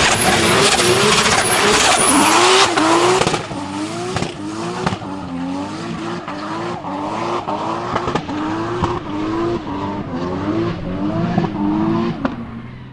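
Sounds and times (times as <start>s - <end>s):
tyres squealing: 0.0s - 3.2s
engine crack: 0.0s - 12.9s
engine screaming at high revs: 0.0s - 12.9s.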